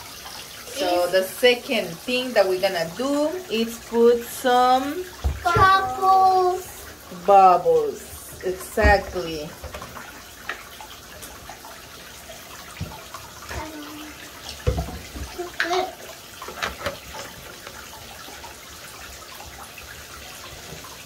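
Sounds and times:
water running into bathtub: 0.0s - 21.0s
knocks and splashes: 4.5s - 11.6s, 12.5s - 18.6s.

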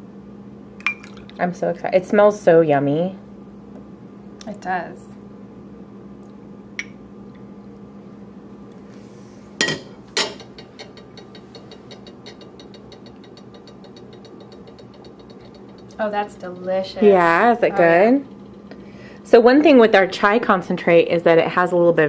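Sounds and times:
kitchenware clinking: 9.6s - 18.2s.

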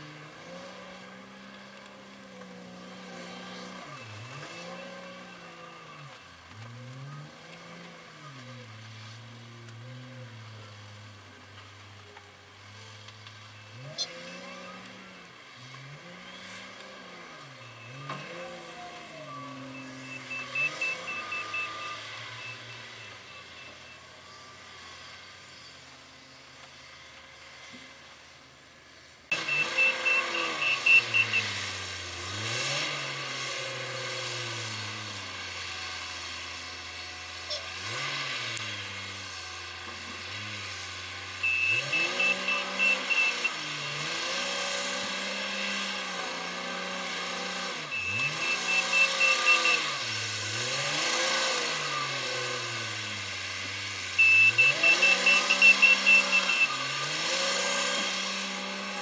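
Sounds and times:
diesel engine revving: 0.0s - 27.7s, 29.3s - 59.0s
reverse alarm beeping: 17.4s - 24.0s, 29.3s - 31.6s, 41.4s - 43.7s, 47.8s - 50.2s, 54.2s - 58.0s.

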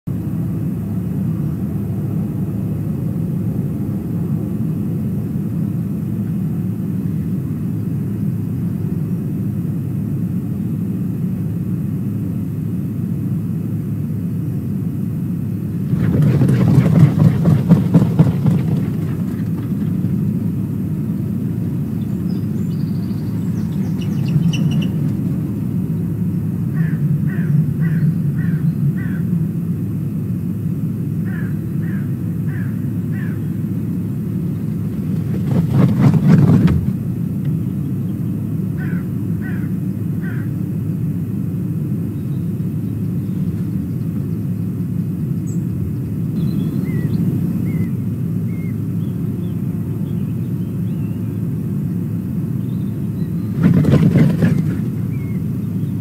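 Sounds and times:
steady low rumble: 0.0s - 56.0s
bird wingbeats flurry: 15.7s - 28.5s, 34.0s - 37.7s, 53.2s - 56.0s
quick bird calls: 21.1s - 29.4s, 31.2s - 36.4s, 37.6s - 40.6s, 45.4s - 51.4s, 52.6s - 56.0s.

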